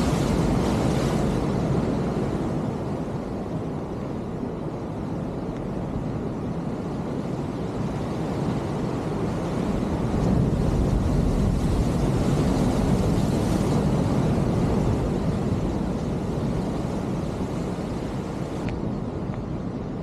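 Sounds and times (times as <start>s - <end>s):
surf rushing against rocks: 0.0s - 2.9s, 8.5s - 18.9s
wind buffeting microphone: 0.0s - 20.0s.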